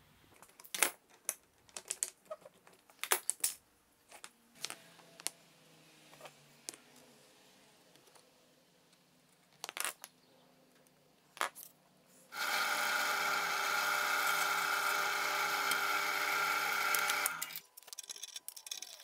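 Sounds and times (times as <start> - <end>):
drill press boring into wood: 12.3 - 17.6.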